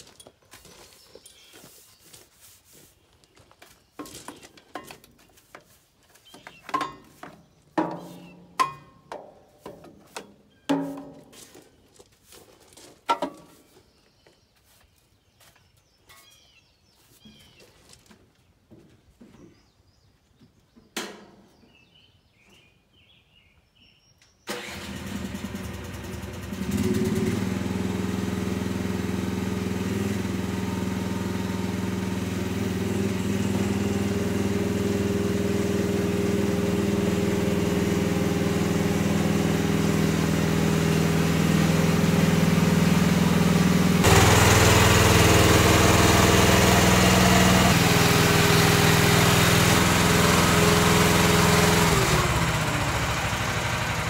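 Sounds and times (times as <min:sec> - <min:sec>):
mini excavator engine running: 0:24.5 - 0:54.0.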